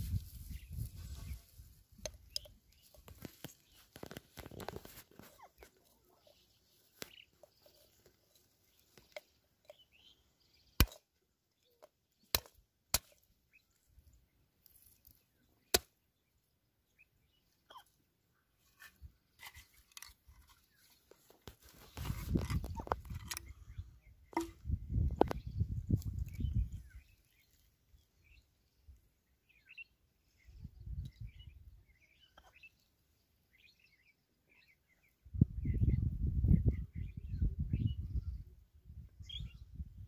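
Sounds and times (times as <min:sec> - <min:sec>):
hands rustling in grass: 0:00.0 - 0:09.0
wooden block knocking brick: 0:24.3 - 0:25.3.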